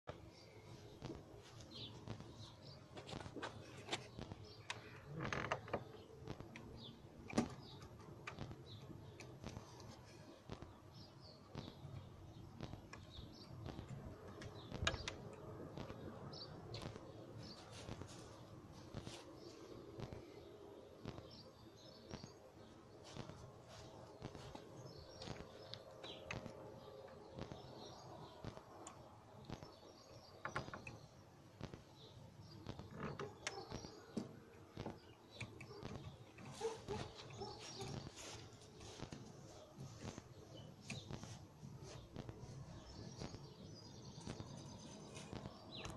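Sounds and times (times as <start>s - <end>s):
birds chirping faintly: 0.1s - 45.9s
wooden pole creaking: 2.9s - 10.7s, 32.6s - 35.0s
wooden pole knocking and clicking: 12.6s - 16.0s, 30.4s - 31.0s.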